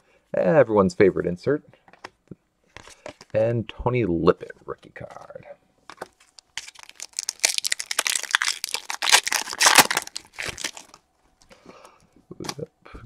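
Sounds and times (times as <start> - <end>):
foil wrapper crinkling and tearing: 6.2 - 11.0.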